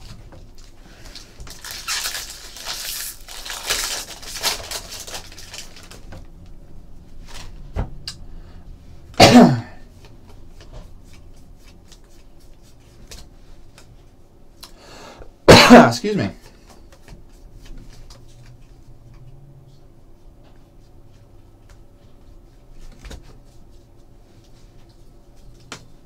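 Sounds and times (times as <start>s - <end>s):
foil wrapper crinkling and tearing: 0.0s - 6.2s
man coughing: 9.2s - 9.8s, 15.5s - 16.4s.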